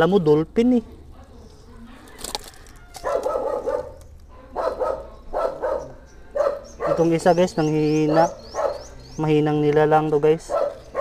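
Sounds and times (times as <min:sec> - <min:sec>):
dog barking: 0:03.0 - 0:07.3, 0:08.1 - 0:08.9, 0:10.4 - 0:11.0.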